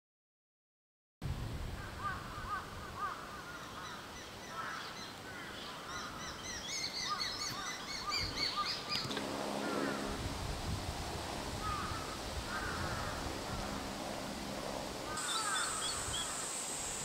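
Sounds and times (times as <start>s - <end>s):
lower-pitched bird call: 1.8s - 10.2s, 15.1s - 16.8s
birds chirping: 2.0s - 10.2s, 11.6s - 13.9s, 15.0s - 17.0s.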